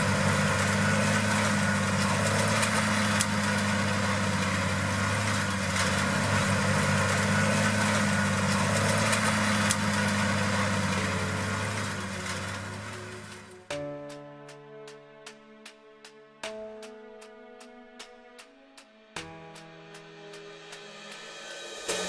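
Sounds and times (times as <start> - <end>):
tractor diesel engine running: 0.0 - 13.7.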